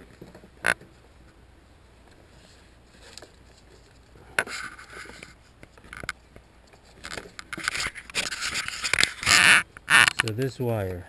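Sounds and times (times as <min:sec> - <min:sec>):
hands rubbing and scraping: 0:02.2 - 0:10.3.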